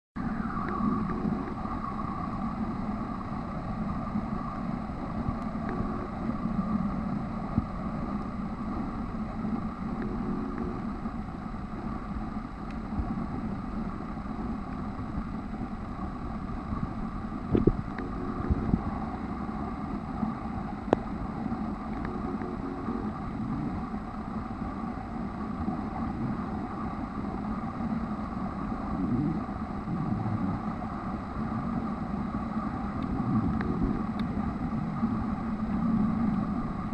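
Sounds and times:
muffled underwater noise: 0.2 - 36.9
faint clicks: 0.6 - 1.6, 21.9 - 22.6, 33.0 - 34.4.

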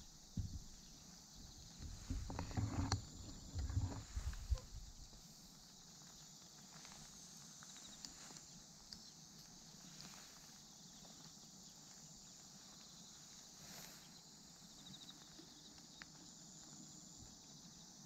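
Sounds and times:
steady high hiss: 0.0 - 18.0
faint clicks: 1.7 - 9.7, 14.8 - 16.8.

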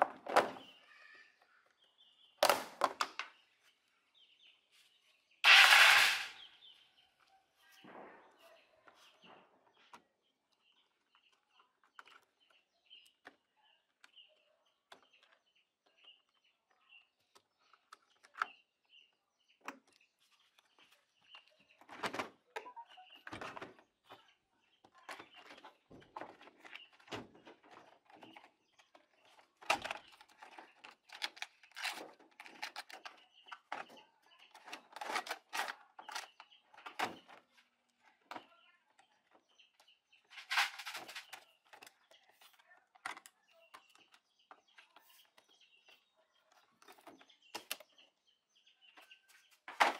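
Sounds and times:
bird chirping: 0.4 - 49.9
plastic panels clicking and rattling: 8.9 - 48.1.

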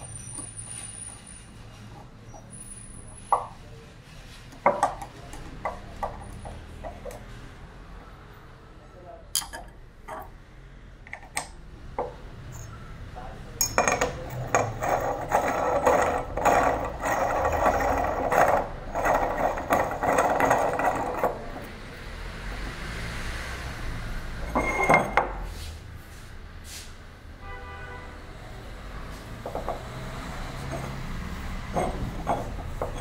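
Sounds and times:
glass threads grinding: 13.6 - 21.8, 24.4 - 25.4, 30.5 - 33.0.

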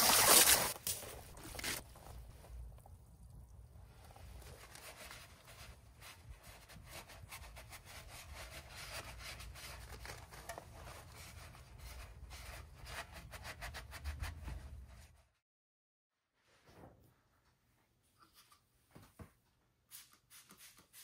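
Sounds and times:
scrubbing a surface: 4.3 - 15.4, 19.9 - 21.0.

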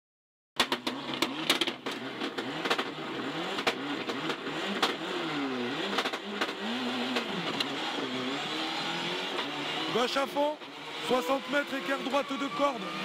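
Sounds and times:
sharp knocks and clicks: 0.6 - 2.9, 3.5 - 5.0, 5.9 - 6.6
rally car engine revving: 0.6 - 13.0.

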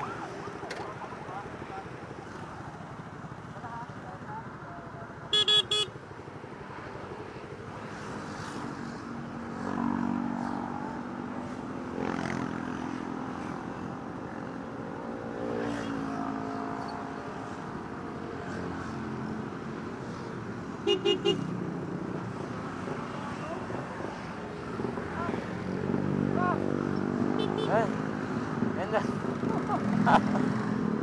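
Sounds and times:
motorcycle engines idling: 0.0 - 6.7
passing road traffic: 0.0 - 31.0
quick horn toots: 5.3 - 5.9.

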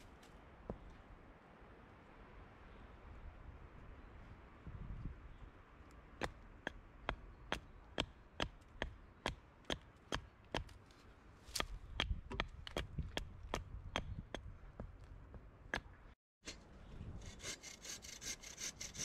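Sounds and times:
axe chopping wood: 6.2 - 10.8.

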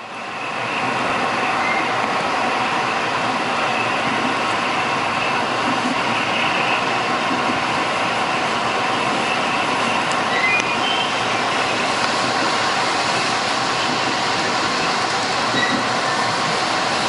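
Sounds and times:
train wheel and track noise: 0.0 - 17.0.

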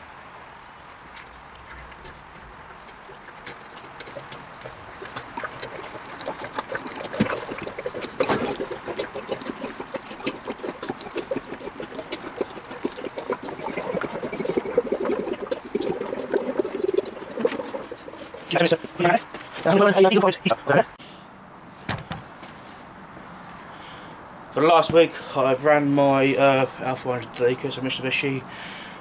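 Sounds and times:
oil gurgling into a funnel: 1.3 - 20.1.

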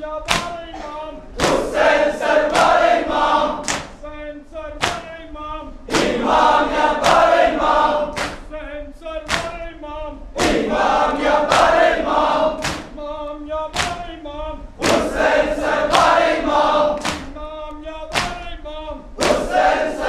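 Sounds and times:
lead voice chanting: 0.0 - 20.0
crowd of men chanting: 0.7 - 3.7, 5.9 - 8.2, 10.4 - 12.7, 14.8 - 17.3, 19.2 - 20.0.

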